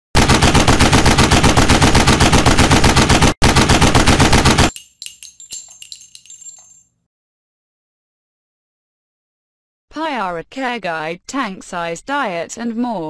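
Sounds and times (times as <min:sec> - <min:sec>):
rapid machine-gun fire: 0:00.2 - 0:04.7.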